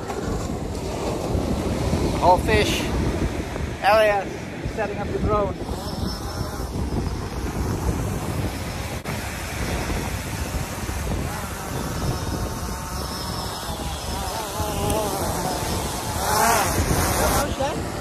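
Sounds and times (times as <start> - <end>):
wind rumble on microphone: 0.0 - 18.0
drone propellers whining: 10.4 - 18.0.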